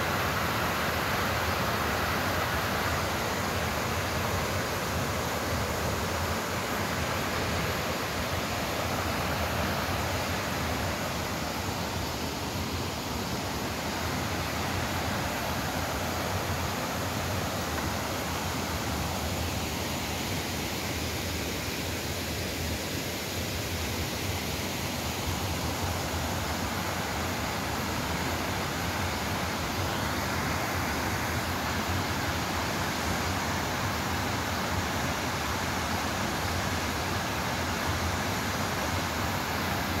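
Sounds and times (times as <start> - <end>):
waterfall rushing: 0.0 - 40.0.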